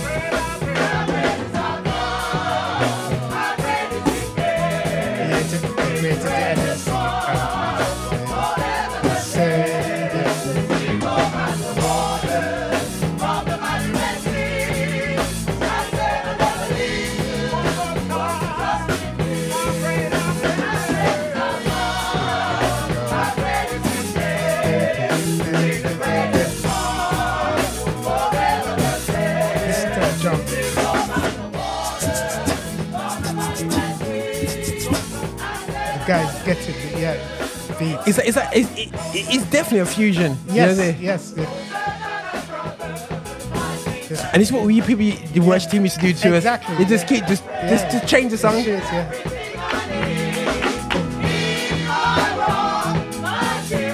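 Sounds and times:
gospel choir singing: 0.0s - 53.9s
live band with drums and bass: 0.0s - 53.9s.

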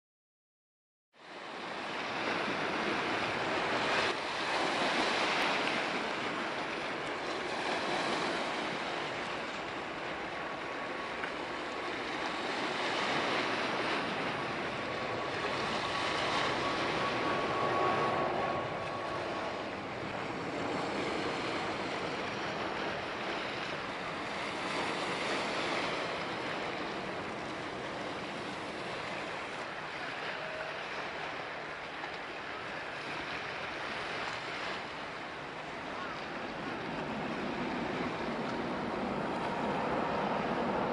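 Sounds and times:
water lapping at shore: 1.2s - 40.9s
faint thin whistle tone: 30.0s - 30.9s.

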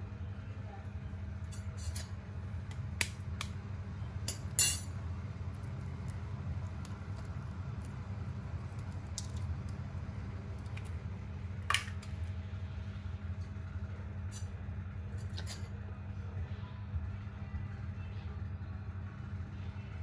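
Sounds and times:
steady low hum: 0.0s - 20.0s
eggshells cracking: 8.7s - 9.8s.

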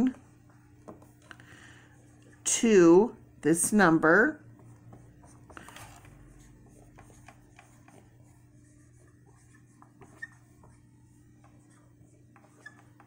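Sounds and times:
steady low hum: 0.0s - 13.0s
marker writing on whiteboard: 3.7s - 13.0s.

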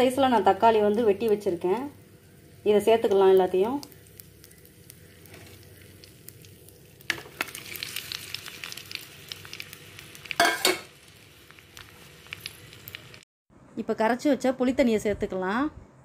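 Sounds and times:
garlic sizzling in hot oil: 0.0s - 13.2s.

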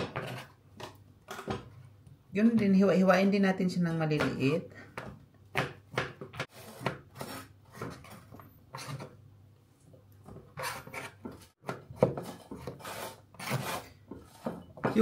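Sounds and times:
knife chopping on cutting board: 5.0s - 8.0s.

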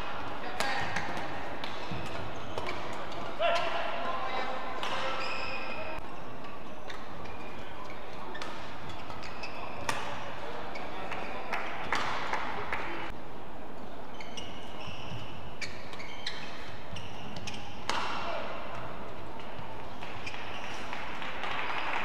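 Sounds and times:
crowd noise: 0.0s - 22.0s
racket hitting shuttlecock: 0.5s - 3.8s, 4.8s - 5.2s, 8.3s - 10.2s, 17.3s - 20.9s
shoes squeaking on court: 0.6s - 11.6s, 14.1s - 18.2s, 19.5s - 21.0s.

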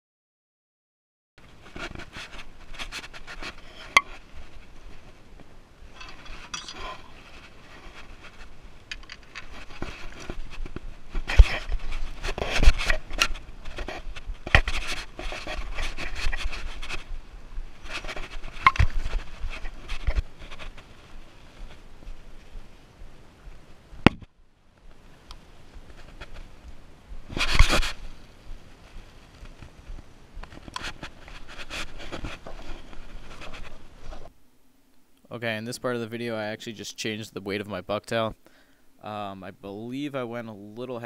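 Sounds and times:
camera handling rubbing and knocking: 1.4s - 17.2s, 17.8s - 22.2s, 24.0s - 24.3s, 25.8s - 26.6s, 27.2s - 28.2s, 29.3s - 34.3s.

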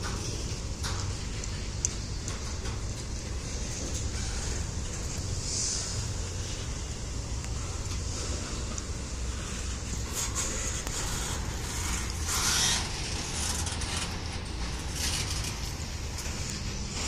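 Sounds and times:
freight train wheels rumbling: 0.0s - 17.0s
metallic scraping: 7.6s - 17.0s.

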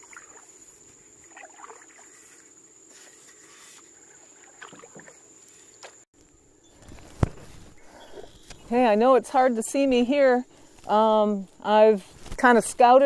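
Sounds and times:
paddle dipping in water: 0.0s - 6.0s.

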